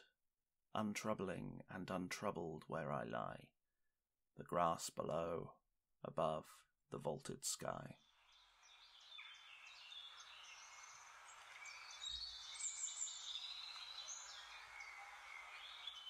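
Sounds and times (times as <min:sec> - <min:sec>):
songbirds singing: 0:08.0 - 0:16.0
faint outdoor hiss: 0:08.1 - 0:16.0.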